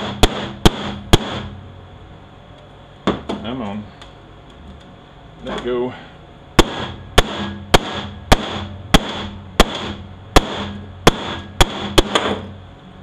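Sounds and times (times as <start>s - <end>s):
metal-on-metal strikes ringing: 6.6s - 12.4s.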